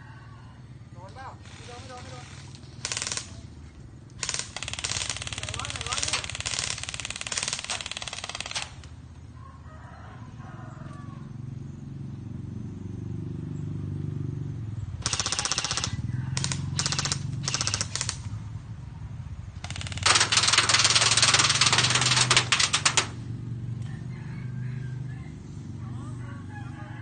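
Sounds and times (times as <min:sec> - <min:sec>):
airsoft guns firing bursts: 0:01.4 - 0:03.6, 0:04.2 - 0:09.0, 0:15.0 - 0:18.3, 0:19.6 - 0:23.2.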